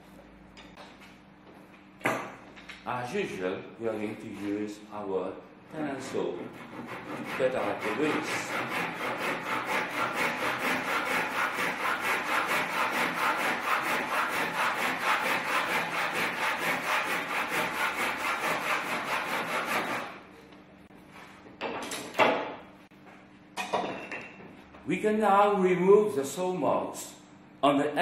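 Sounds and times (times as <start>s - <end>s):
hand saw cutting wood: 6.0s - 20.2s.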